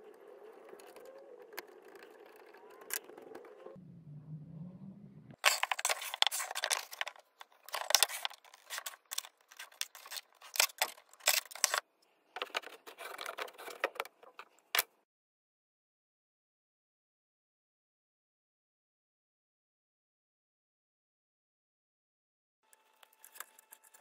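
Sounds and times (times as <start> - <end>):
scraping and scratching on wood: 5.4 - 11.8, 12.4 - 14.9.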